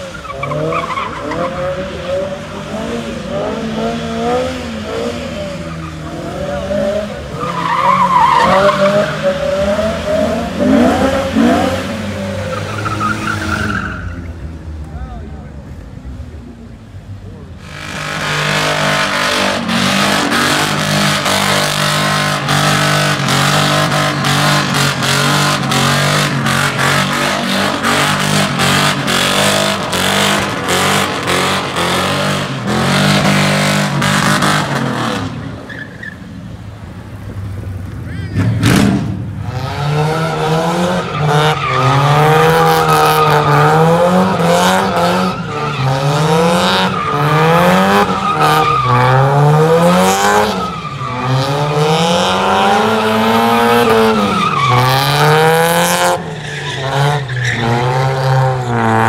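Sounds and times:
car engine revving: 0.0s - 14.1s, 17.6s - 35.7s, 37.1s - 59.0s
tyres squealing: 50.0s - 55.4s.

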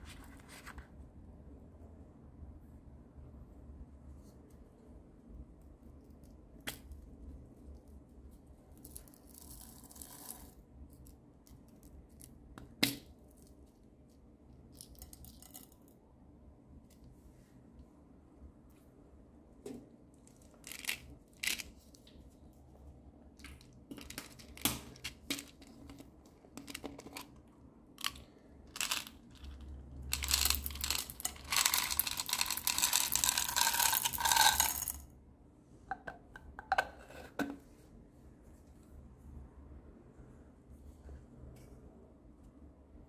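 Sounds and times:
small balls rattling onto tray: 28.0s - 35.0s.

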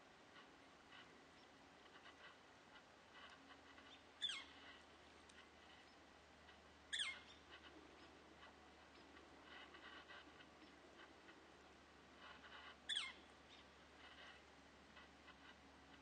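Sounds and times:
bird calling: 3.8s - 4.8s, 6.9s - 8.2s, 12.4s - 14.3s.

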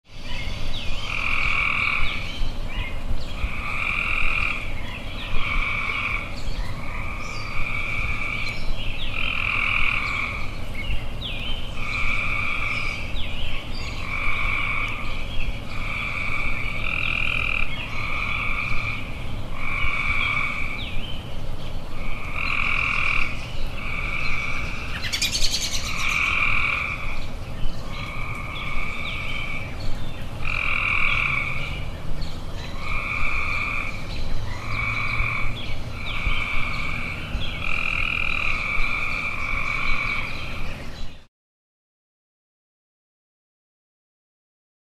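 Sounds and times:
tree frogs calling: 0.1s - 41.3s.

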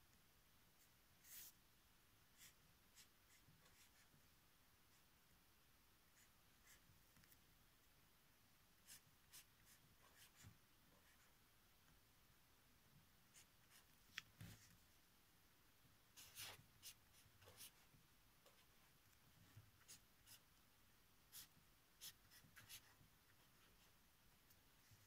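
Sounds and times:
marker pen writing on paper: 2.4s - 4.2s, 8.9s - 11.3s, 16.2s - 17.8s, 19.5s - 20.5s, 21.3s - 23.9s.

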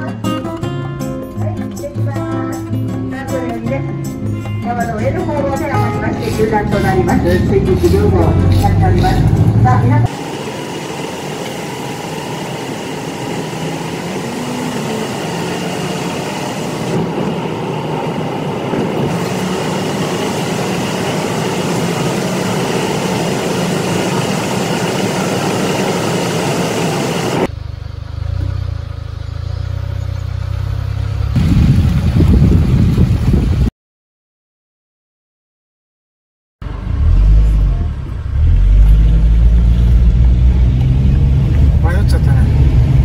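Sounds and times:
car road and tyre noise in tunnel: 6.0s - 31.7s, 36.6s - 43.0s
wind rumble on microphone: 16.8s - 20.7s, 31.3s - 33.7s.

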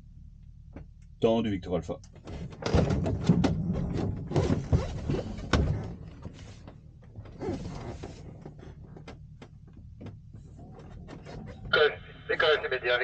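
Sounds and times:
knocks and rattles in cockpit: 0.4s - 12.6s
steady low rumble: 8.2s - 13.0s.

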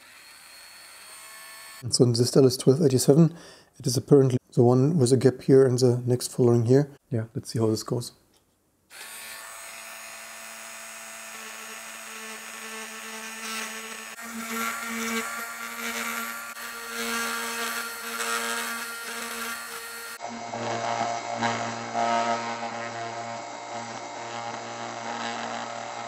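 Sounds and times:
drill bit grinding into chip: 0.0s - 1.8s, 8.9s - 26.0s
rotary tool whine: 0.0s - 1.8s, 8.9s - 26.0s.

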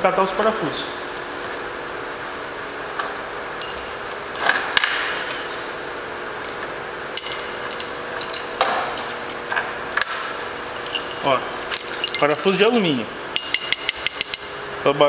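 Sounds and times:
steady hum: 0.0s - 15.0s
metal bolts clinking: 6.4s - 14.8s.

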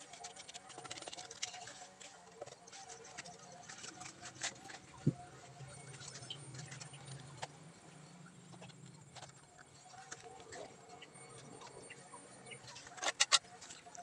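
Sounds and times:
concrete blocks being handled: 0.0s - 7.6s
faint low hum: 0.0s - 14.0s.

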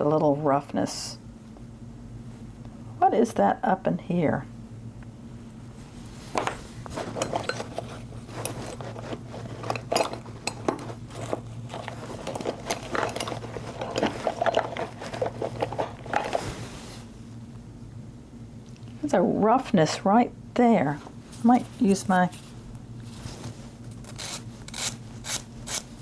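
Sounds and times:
steady low hum: 0.0s - 26.0s
metal shear blades clinking and scraping: 7.1s - 7.8s.

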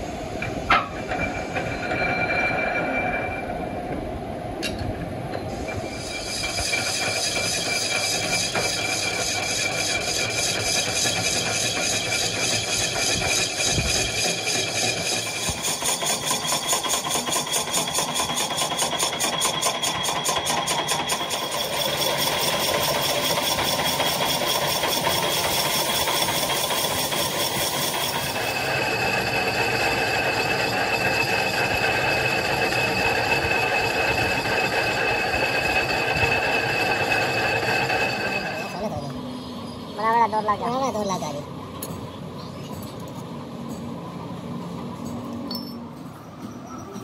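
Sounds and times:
high ringing cutting tones: 0.7s - 4.0s, 5.6s - 41.0s
metal lathe drone: 5.6s - 40.7s.

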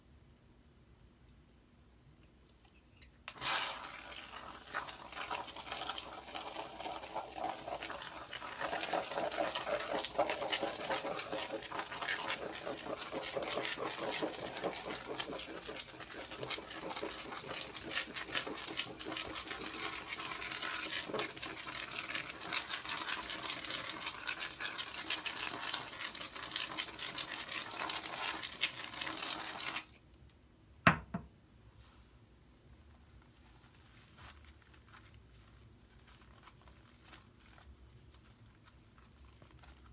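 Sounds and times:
aerosol can spraying foam: 3.3s - 21.1s
short knock: 30.8s - 31.3s.

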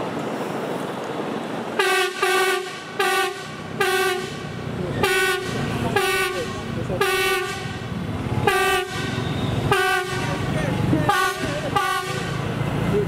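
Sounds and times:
train running noise: 0.0s - 13.0s
train horn toots: 1.8s - 4.4s, 5.0s - 10.5s, 11.1s - 12.4s.

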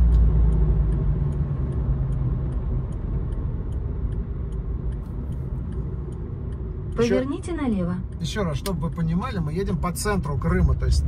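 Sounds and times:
car engine and tyre rumble: 0.0s - 11.0s
turn signal ticking: 0.0s - 11.0s.

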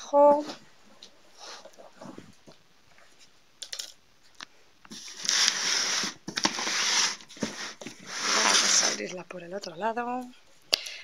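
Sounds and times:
packing tape ripping: 5.0s - 9.0s.

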